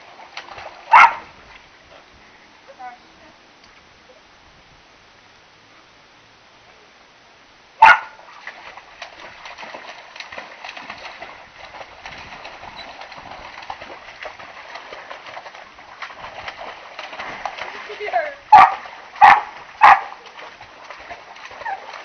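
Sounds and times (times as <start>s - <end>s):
water splashing and sloshing: 0.0s - 3.0s, 7.8s - 22.0s
dog barking: 0.9s - 1.2s, 7.8s - 8.2s, 18.5s - 20.2s.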